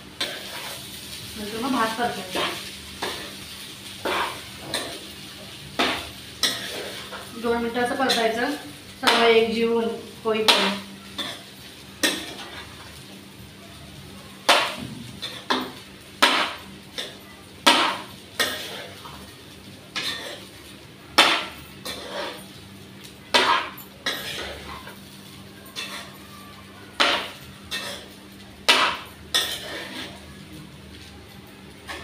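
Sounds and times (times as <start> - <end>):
spoon scraping and clacking in pan: 0.2 - 0.9, 4.0 - 5.2, 5.8 - 7.3, 10.4 - 12.8, 14.5 - 19.3, 20.0 - 20.5, 21.2 - 22.6, 23.3 - 25.0, 25.7 - 26.2, 27.0 - 30.2.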